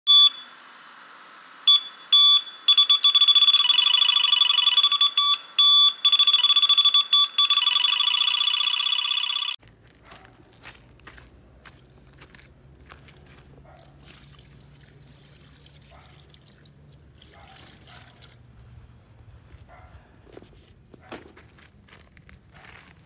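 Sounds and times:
high electronic beeps: 0.1 - 0.6, 1.7 - 9.6.

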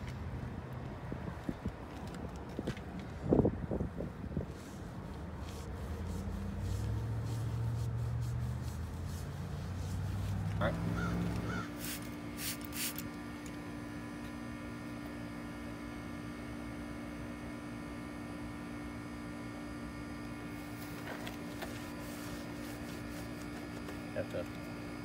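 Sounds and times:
steady hum: 3.3 - 25.0
towel rubbing: 4.6 - 10.5, 20.8 - 23.9
spray bottle squirts: 11.8 - 13.0.

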